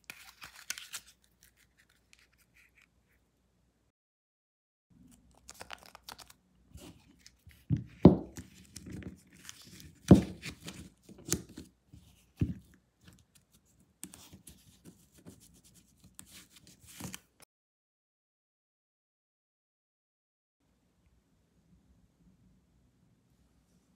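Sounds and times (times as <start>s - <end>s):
paper bills rustling: 0.0s - 2.8s, 5.3s - 7.5s.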